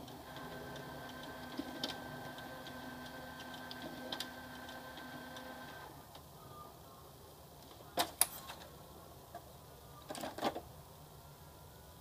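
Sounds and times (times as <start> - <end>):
printer motor hum: 0.0 - 6.0.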